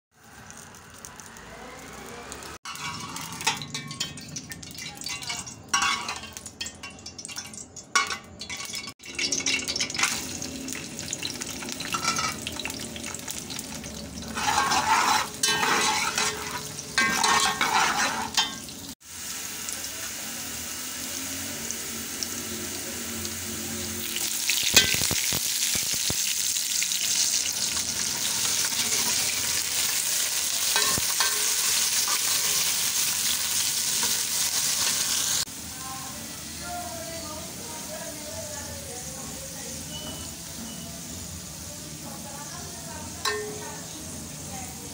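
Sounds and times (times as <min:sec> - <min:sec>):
onions sizzling in hot oil: 0:00.1 - 0:44.9
ladle scraping a pot: 0:02.7 - 0:04.0, 0:14.2 - 0:18.6.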